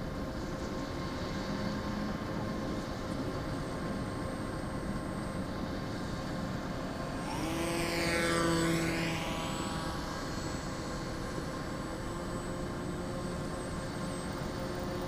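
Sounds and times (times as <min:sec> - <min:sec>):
model plane motor whining: 0:00.2 - 0:15.0
plane passing whoosh: 0:05.9 - 0:12.1.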